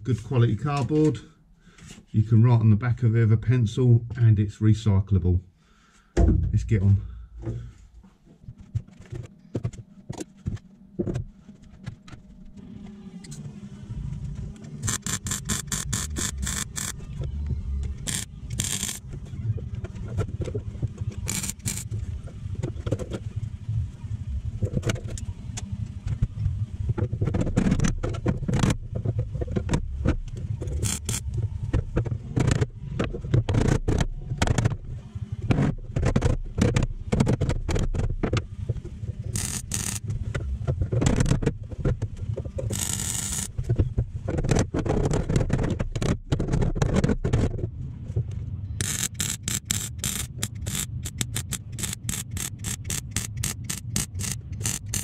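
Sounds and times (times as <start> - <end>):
low hum: 5.4 - 44.5
knocks clatter and scrapes: 14.1 - 23.6, 26.0 - 34.8, 35.4 - 55.0
fast run of clicks: 14.8 - 17.0, 18.0 - 19.1, 21.2 - 22.0, 29.5 - 31.9, 39.2 - 41.5, 42.4 - 43.9, 48.8 - 55.0.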